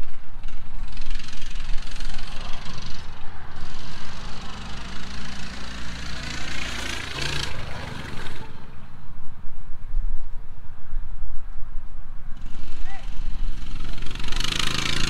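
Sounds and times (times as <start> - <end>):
small motorbike passing by: 0.0 - 9.2, 12.4 - 15.0.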